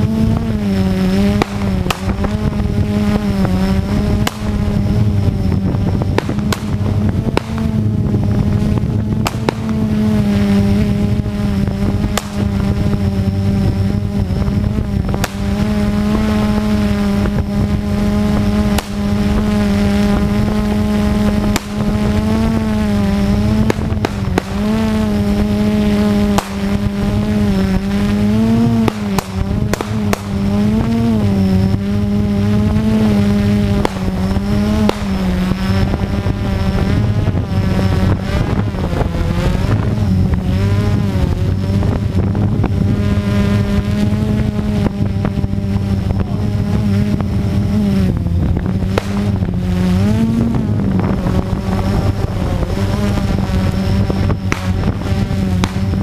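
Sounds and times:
drone motors humming: 0.0s - 56.0s
pistol shots: 1.4s - 2.2s, 4.2s - 4.5s, 6.2s - 7.7s, 9.2s - 9.8s, 12.2s - 12.5s, 21.5s - 21.8s, 23.7s - 24.6s, 26.4s - 26.7s, 28.8s - 30.4s, 33.8s - 34.2s, 34.9s - 35.2s, 49.0s - 49.3s.

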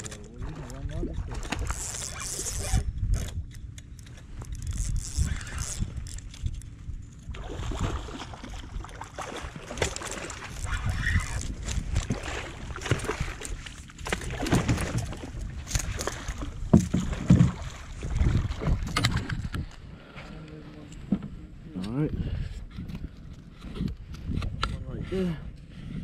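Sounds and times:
fish thrashing and splashing: 7.3s - 19.5s.

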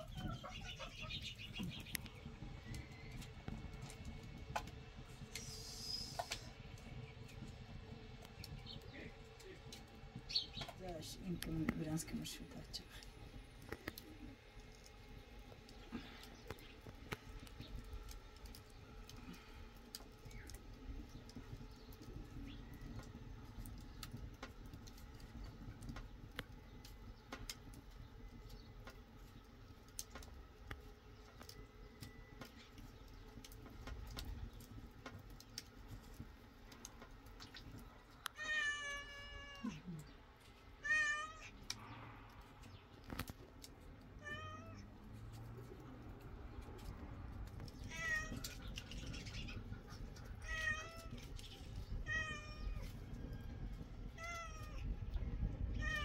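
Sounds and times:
cat meowing: 38.4s - 39.8s, 40.8s - 41.5s, 44.2s - 44.8s, 47.9s - 48.5s
faint clicks: 41.5s - 43.9s.

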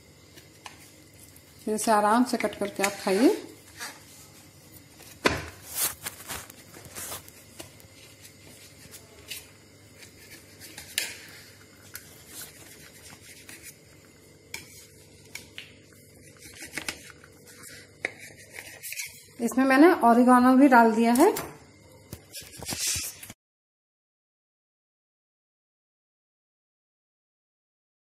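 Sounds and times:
knife scraping a ceramic plate: 16.2s - 19.4s.

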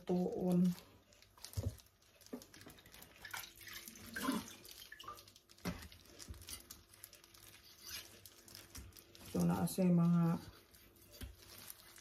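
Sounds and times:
water splashing and dripping: 1.5s - 6.4s.

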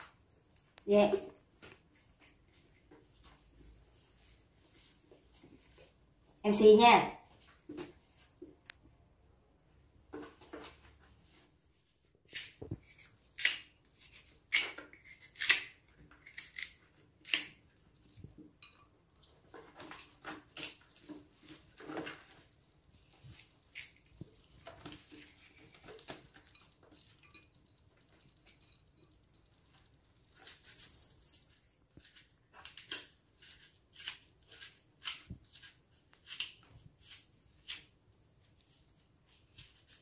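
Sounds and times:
knife cutting firm fruit: 12.3s - 17.6s, 32.0s - 37.9s.

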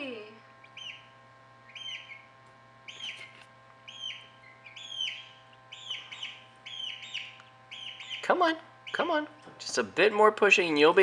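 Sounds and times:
faint steady hum: 0.0s - 11.0s
chicks peeping: 0.6s - 9.8s.

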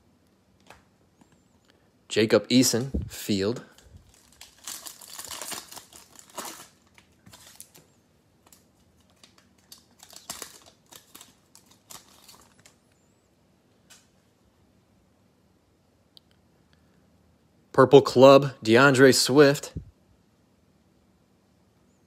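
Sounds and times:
foil wrapper crinkling: 2.7s - 12.8s
foil wrapper tearing: 3.7s - 7.8s, 8.5s - 12.8s.

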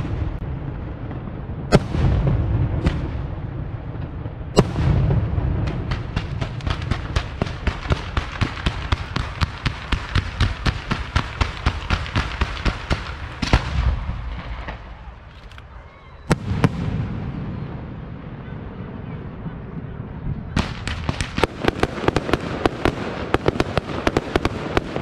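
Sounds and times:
loud firework bang: 1.1s - 3.4s, 4.0s - 14.9s
rapid firework shots: 4.6s - 15.1s, 20.6s - 25.0s.

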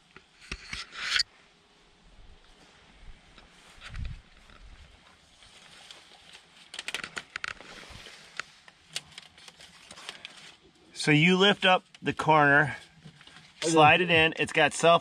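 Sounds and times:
light clicks and crinkles: 3.3s - 10.8s, 12.8s - 13.6s.

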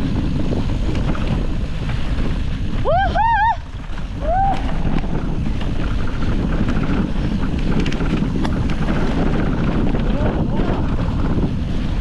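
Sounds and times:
mountain bike rumbling over dirt: 0.0s - 12.0s
wind buffeting microphone: 0.0s - 12.0s
sharp rattles: 3.6s - 12.0s.

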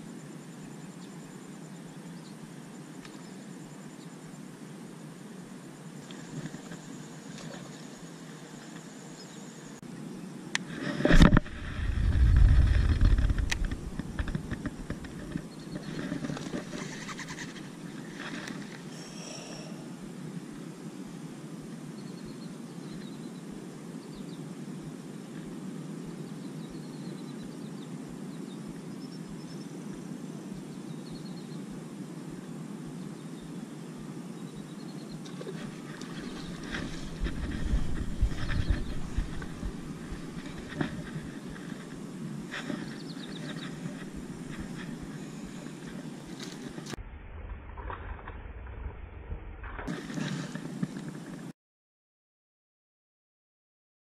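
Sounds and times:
outdoor background noise: 0.0s - 51.6s
microphone handling clicks and knocks: 10.8s - 17.4s, 35.9s - 41.9s
low rumble: 11.3s - 15.2s, 36.2s - 41.6s, 46.8s - 49.9s.

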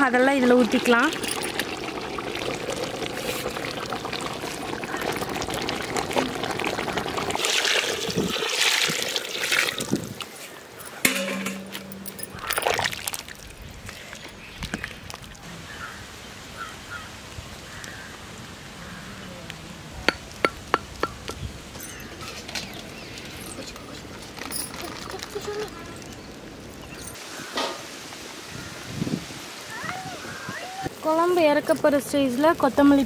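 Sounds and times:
sharp clinks: 10.8s - 12.6s.

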